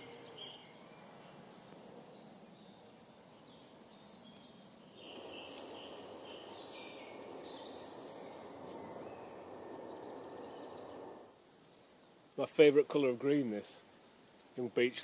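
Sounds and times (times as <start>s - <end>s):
birds chirping: 0.0s - 12.0s
steady rustling: 5.0s - 11.3s.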